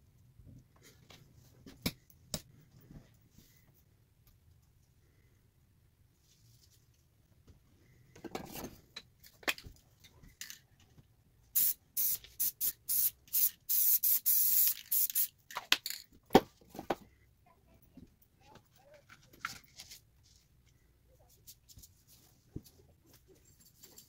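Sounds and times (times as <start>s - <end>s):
spray paint can hissing: 11.6s - 15.4s.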